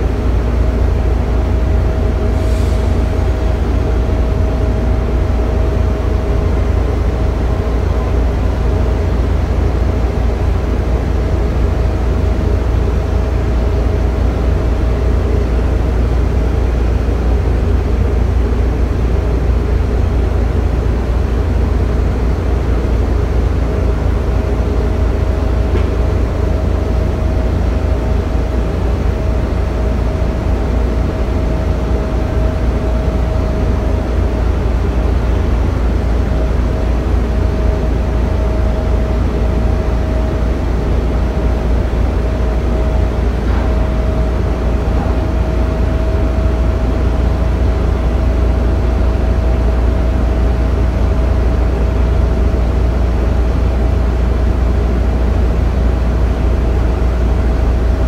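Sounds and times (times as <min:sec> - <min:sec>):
thin steady whine: 0:00.0 - 0:58.0
heavy machinery rumbling: 0:22.0 - 0:50.0.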